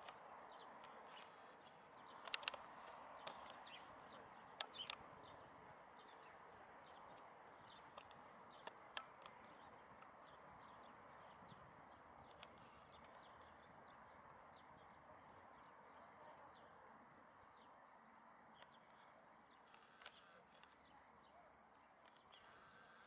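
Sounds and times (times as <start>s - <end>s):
sharp clicks: 0.0s - 5.4s, 6.9s - 10.4s, 12.2s - 13.4s, 18.6s - 20.9s
small birds chirping: 0.0s - 23.0s.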